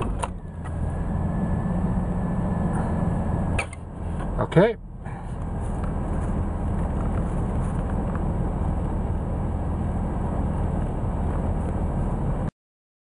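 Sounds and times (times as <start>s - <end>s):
van engine idling: 0.0s - 12.4s.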